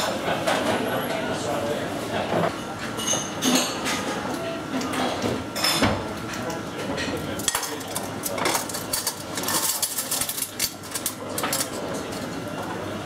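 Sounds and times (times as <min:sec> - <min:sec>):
crockery and cutlery clinking: 0:02.7 - 0:04.1, 0:04.8 - 0:12.4.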